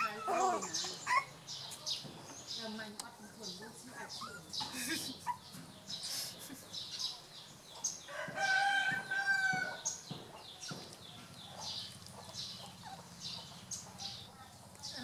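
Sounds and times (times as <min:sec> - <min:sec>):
rooster crowing: 0:08.1 - 0:09.9.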